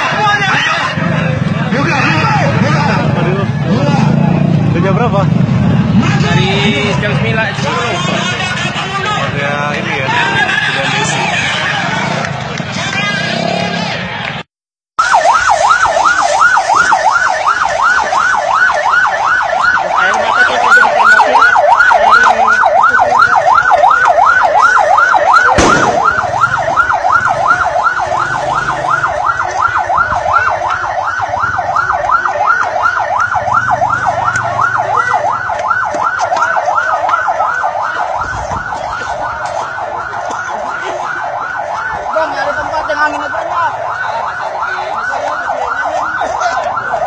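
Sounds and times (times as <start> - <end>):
electronic siren yelping: 15.0 - 47.0
sharp bang: 25.6 - 26.5.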